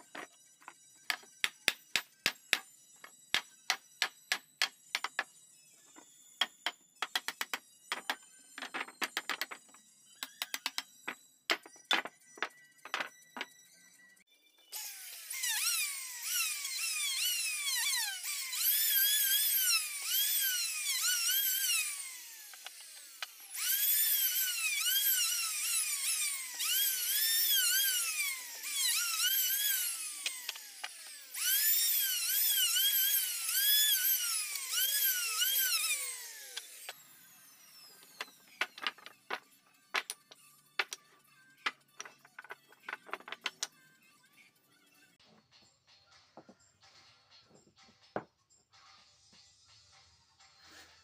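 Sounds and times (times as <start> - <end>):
router whining while cutting wood: 14.8 - 39.4.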